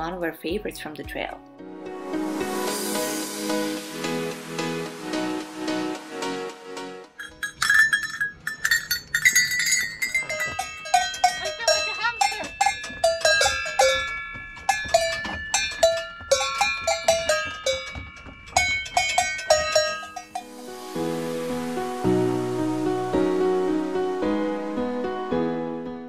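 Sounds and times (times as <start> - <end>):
cowbells struck: 7.2 - 20.9.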